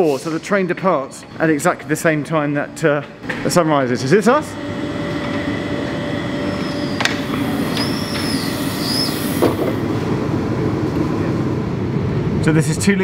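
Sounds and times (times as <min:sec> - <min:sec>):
high wheel squeals: 0:04.4 - 0:09.9.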